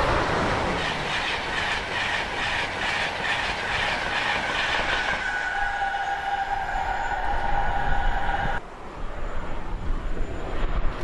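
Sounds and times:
train wheels clattering on rails: 0.7s - 6.6s.

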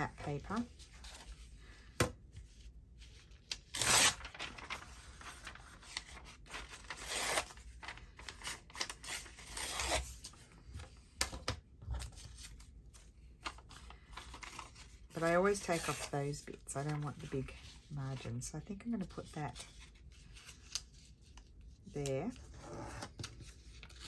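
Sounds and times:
paper rustling: 2.4s - 11.0s
paper ripping: 3.4s - 10.3s.

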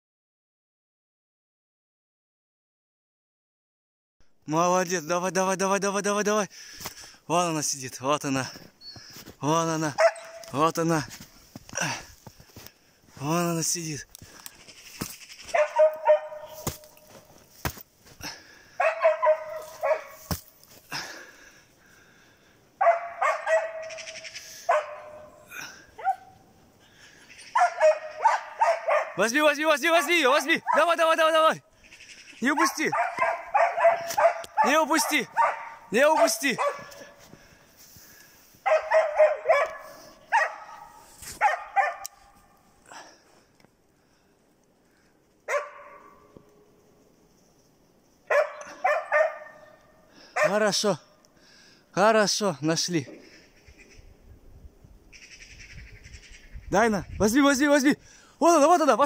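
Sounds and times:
dog barking rapidly: 9.9s - 10.5s, 15.5s - 16.9s, 18.8s - 20.2s, 22.8s - 25.4s, 26.0s - 26.4s, 27.5s - 31.0s, 32.4s - 37.2s, 38.6s - 42.1s, 45.5s - 46.2s, 48.3s - 49.7s, 50.4s - 50.7s.

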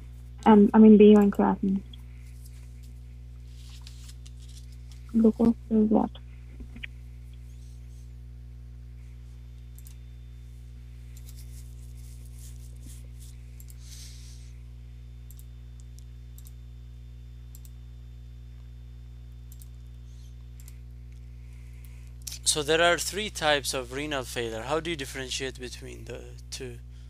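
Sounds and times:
low electrical hum: 0.0s - 27.0s
computer input clicks: 9.7s - 10.0s.

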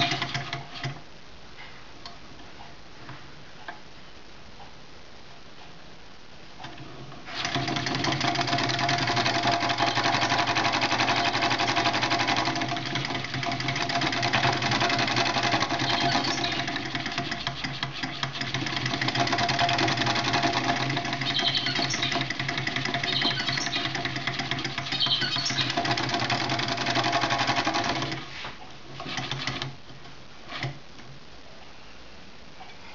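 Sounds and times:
small engine linkages rattling: 0.0s - 1.0s, 6.6s - 28.4s.

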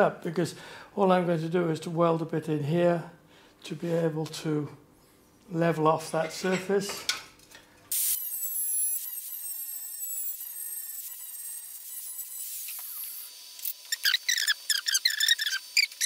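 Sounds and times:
angle grinder grinding steel: 7.9s - 16.0s.

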